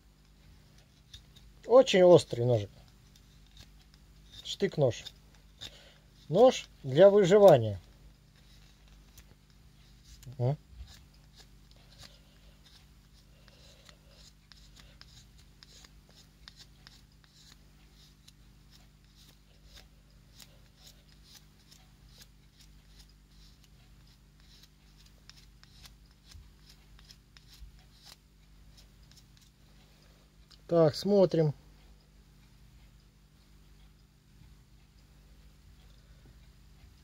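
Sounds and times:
blade shaving pencil wood: 0:00.7 - 0:29.5.

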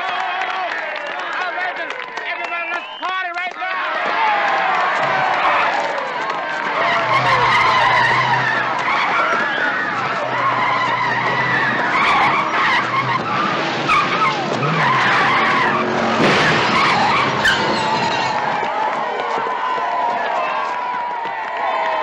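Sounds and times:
crowd shouting and screaming: 0:00.0 - 0:22.0
car tyres squealing: 0:04.6 - 0:19.3
sharp crack: 0:06.3 - 0:18.7
car engine running: 0:06.4 - 0:18.6.

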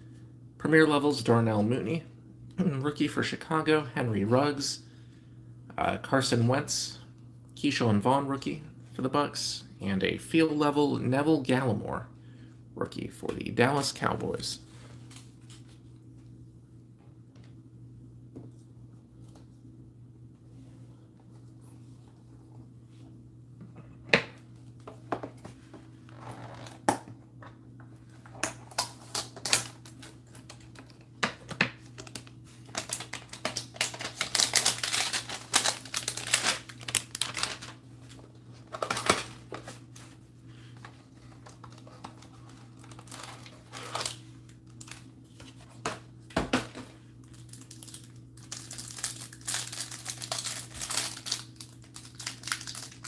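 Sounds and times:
plastic wrapping crinkling and tearing: 0:28.5 - 0:31.0, 0:31.9 - 0:39.6, 0:41.4 - 0:45.1, 0:47.2 - 0:53.0.

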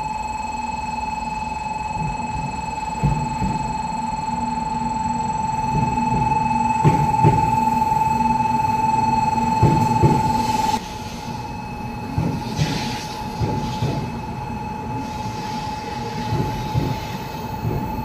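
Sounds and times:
steady high-pitched tone: 0:00.0 - 0:16.5
irregular knocks: 0:05.6 - 0:10.8
train rumbling: 0:05.6 - 0:18.0.

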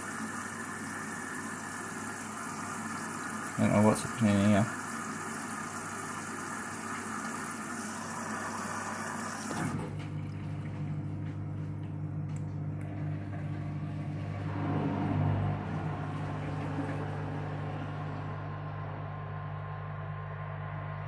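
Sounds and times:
low motor hum: 0:09.4 - 0:21.0.

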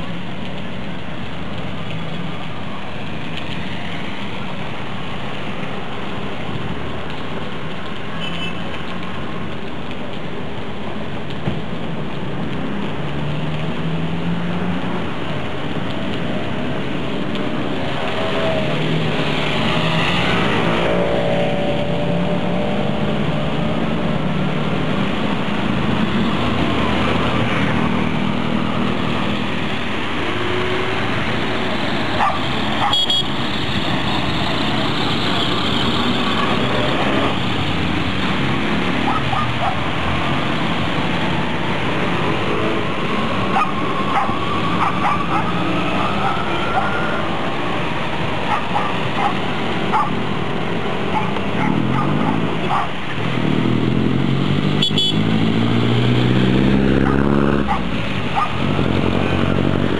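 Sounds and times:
heavy rain on a wet street: 0:00.0 - 0:59.9
tyres swishing on flooded road: 0:00.0 - 0:59.9
dog barking: 0:32.2 - 0:33.1, 0:39.0 - 0:39.8, 0:43.5 - 0:45.5, 0:48.5 - 0:50.2, 0:51.1 - 0:53.0, 0:57.0 - 0:58.6.

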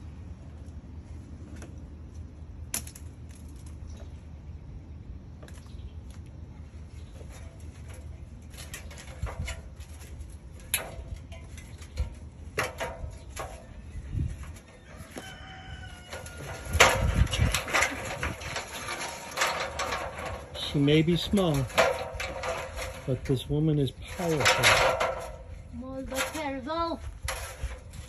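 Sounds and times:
knocks and clanks of metal ladder: 0:07.1 - 0:26.6
rooster crowing: 0:14.8 - 0:16.8.

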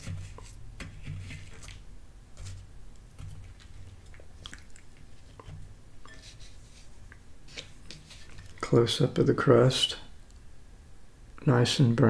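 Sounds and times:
fork crackling pie crust: 0:00.0 - 0:08.6.

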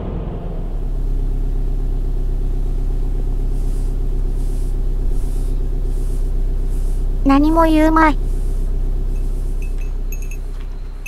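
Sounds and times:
car engine hum in cabin: 0:00.0 - 0:11.0
road noise: 0:00.0 - 0:11.0.

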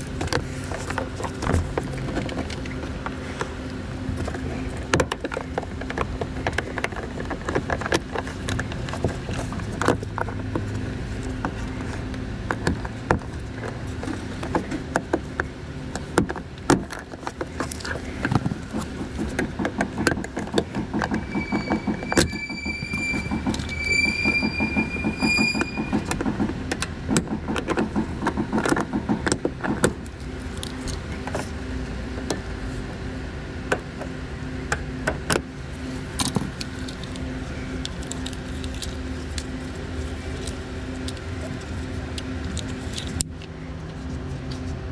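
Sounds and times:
long high squeaks: 0:20.0 - 0:26.5.

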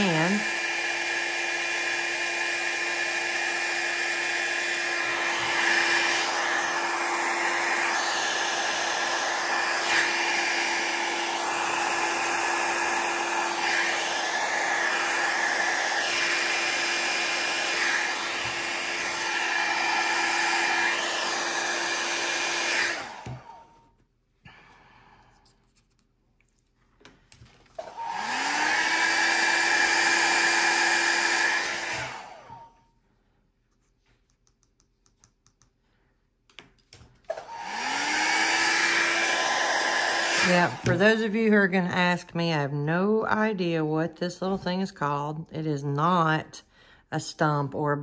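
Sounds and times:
hair dryer blowing: 0:00.0 - 0:23.9, 0:27.7 - 0:32.9, 0:37.2 - 0:42.2.

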